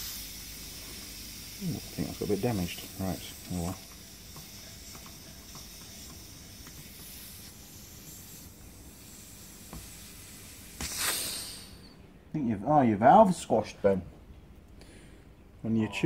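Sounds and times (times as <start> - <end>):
air hissing from inner tube: 0.0 - 12.0
rush of air: 8.2 - 11.9.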